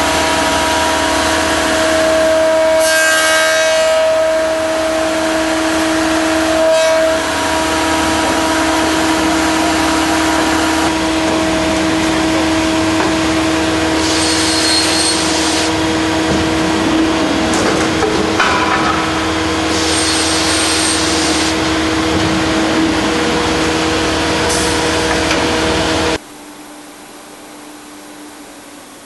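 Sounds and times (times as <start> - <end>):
machine motor hum: 3.9 - 26.4.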